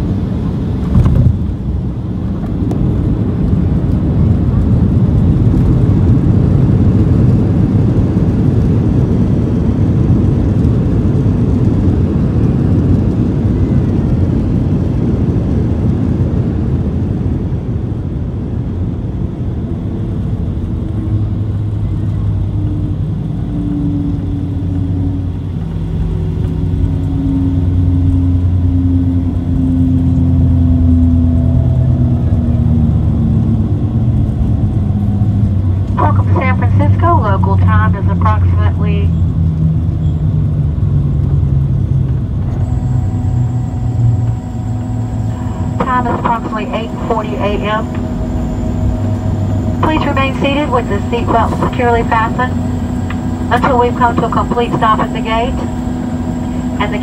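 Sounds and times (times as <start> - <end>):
jet engines humming: 0.0 - 57.0
low rumble of wheels and airflow: 0.0 - 57.0.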